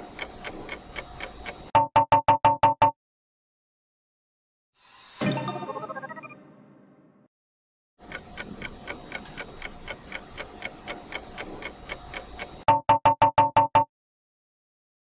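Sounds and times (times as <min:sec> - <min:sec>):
clock-like timer ticking: 0:00.0 - 0:01.7, 0:08.0 - 0:13.8
alarm-like beeps: 0:05.2 - 0:06.6.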